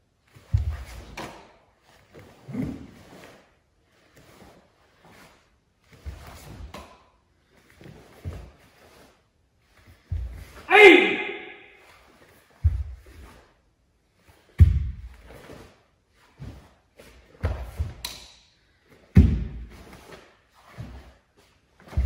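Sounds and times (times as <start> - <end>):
bare feet thudding on hall floor: 0.2 - 3.4, 5.9 - 9.1, 9.8 - 11.8, 12.5 - 13.5, 14.4 - 18.2, 18.9 - 22.0.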